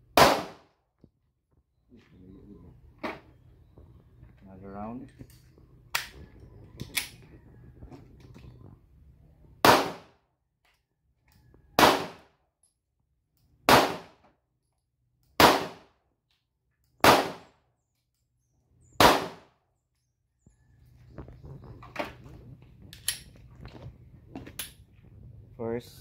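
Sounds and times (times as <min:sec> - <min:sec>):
pistol shots: 0:00.1 - 0:00.7, 0:09.6 - 0:10.2, 0:11.8 - 0:12.3, 0:13.7 - 0:14.2, 0:15.4 - 0:15.9, 0:17.0 - 0:17.6, 0:19.0 - 0:19.5.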